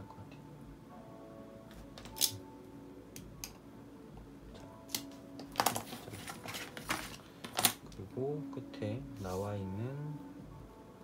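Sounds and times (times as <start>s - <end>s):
paper rustle: 5.6s - 7.8s.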